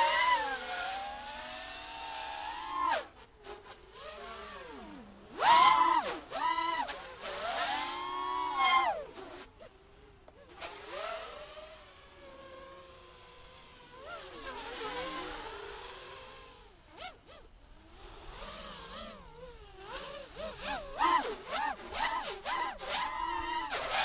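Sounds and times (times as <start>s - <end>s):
racing drone buzzing whine: 0.0s - 24.0s.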